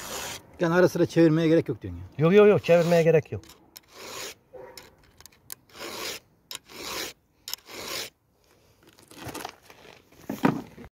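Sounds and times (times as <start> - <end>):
file rasping on chainsaw chain: 0.0 - 0.4, 2.3 - 8.2.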